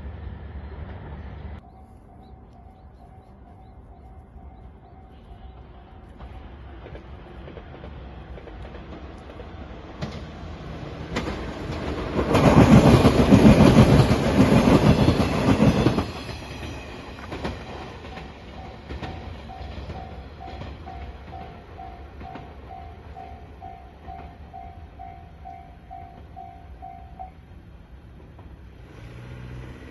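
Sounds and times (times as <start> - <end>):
electric train passing: 0.0 - 29.9
train wheels clacking over rail joints: 5.4 - 26.5
level-crossing bell ringing: 18.0 - 27.4.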